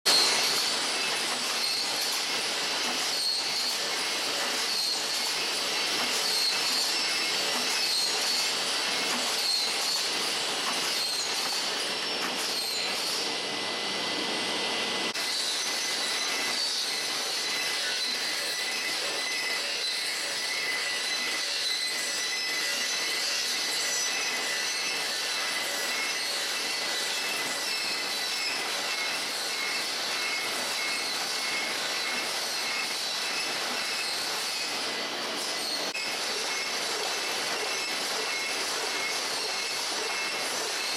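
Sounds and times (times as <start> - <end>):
machinery clattering: 0.1 - 13.3
high metallic squeal: 0.1 - 13.9, 15.0 - 40.9
conveyor machinery clatter: 0.1 - 40.9.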